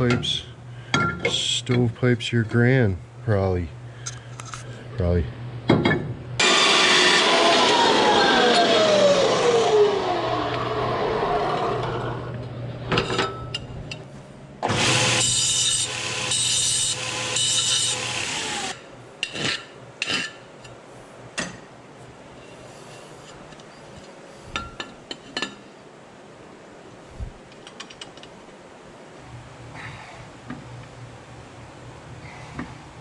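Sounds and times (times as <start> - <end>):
grinder on steel pipe: 14.7 - 18.8.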